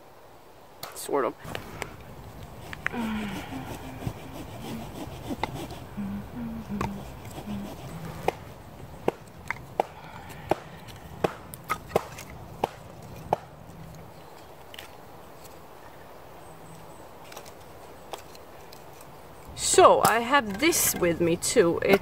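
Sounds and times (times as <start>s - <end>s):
dry sticks knocking together: 9.0s - 15.0s, 20.0s - 22.0s.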